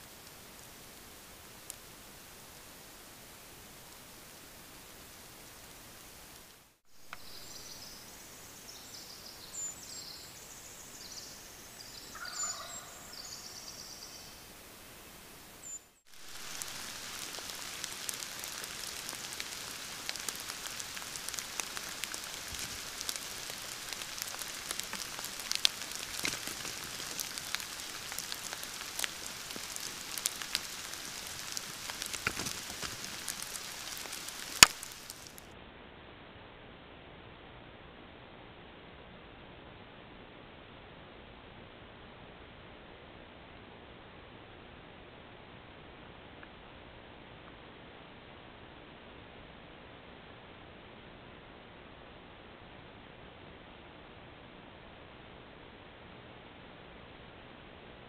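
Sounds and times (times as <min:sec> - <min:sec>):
steady hiss: 0:00.0 - 0:36.8
turkeys calling: 0:11.9 - 0:13.6
small clicks and taps: 0:31.4 - 0:35.3.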